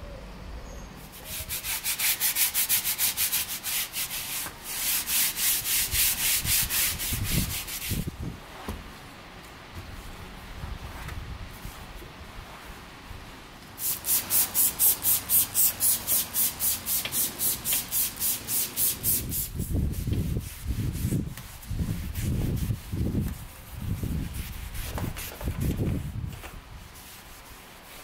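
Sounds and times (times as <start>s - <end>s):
rubbing strokes: 1.0s - 9.0s, 13.8s - 28.0s.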